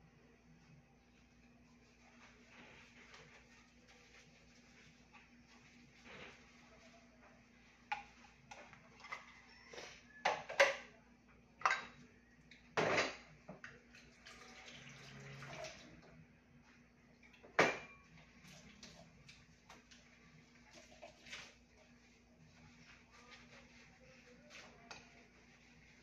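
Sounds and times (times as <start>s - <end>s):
dishes knocking and clattering: 10.1s - 11.0s, 11.6s - 12.0s, 12.8s - 13.7s, 17.2s - 18.0s.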